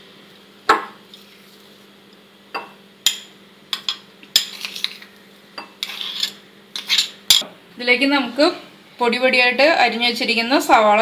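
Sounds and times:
metal spoon scraping bowls: 3.8 - 7.4.

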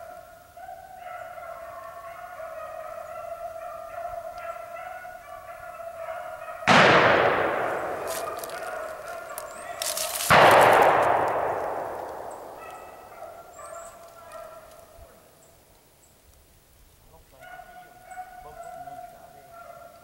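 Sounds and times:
hounds baying: 0.0 - 15.3, 17.3 - 20.0
echoing gunshots: 6.6 - 13.9.

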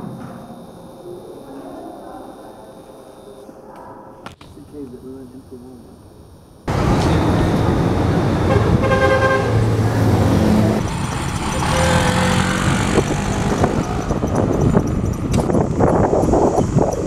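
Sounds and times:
road traffic: 6.5 - 17.0
motor scooter engine: 6.7 - 17.0
vehicle horn: 8.3 - 10.3.

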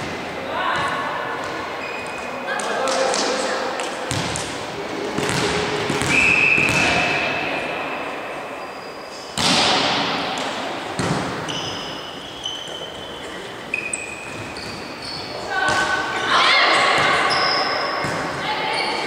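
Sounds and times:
shoes squeaking on court floor: 1.4 - 4.5, 11.0 - 19.0
referee's whistle blast: 6.0 - 7.2
volleyball smack: 9.4 - 10.2.

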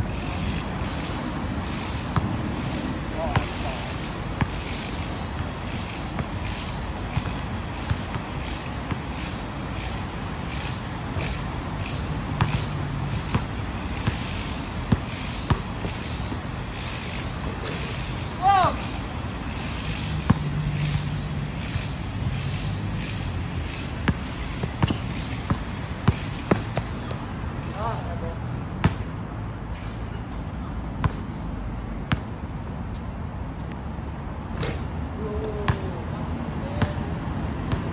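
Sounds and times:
sneaker squeaks: 2.0 - 28.0
basketball bouncing on hard court: 2.1 - 2.6, 3.2 - 9.4, 10.6 - 16.4, 20.2 - 20.5, 23.8 - 27.2, 28.8 - 29.1.

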